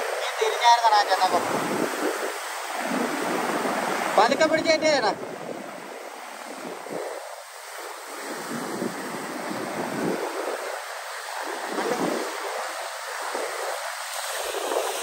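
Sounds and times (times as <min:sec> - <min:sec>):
surf breaking on beach: 0:00.0 - 0:15.0.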